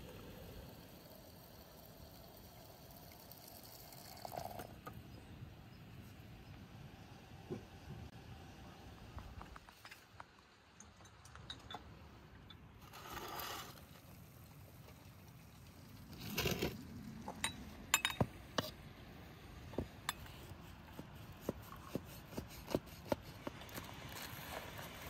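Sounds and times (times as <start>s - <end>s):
glasses and pan clinking on table: 17.4s - 18.3s.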